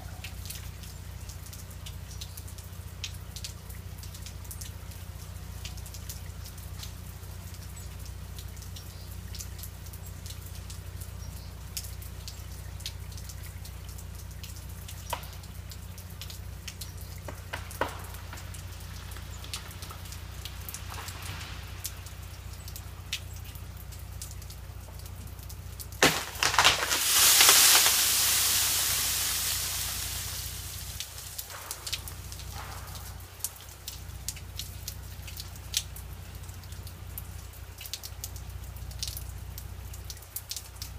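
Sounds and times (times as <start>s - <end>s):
ice dripping and ticking: 0.0s - 40.9s
tree limb cracking: 16.8s - 22.1s, 25.0s - 33.1s
icy branches crashing: 25.9s - 32.8s.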